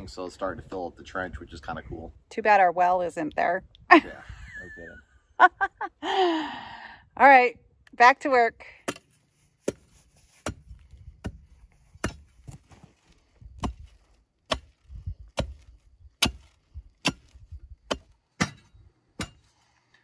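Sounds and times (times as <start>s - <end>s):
steel bar striking rock: 12.0s - 12.3s, 14.5s - 14.8s, 15.4s - 19.6s.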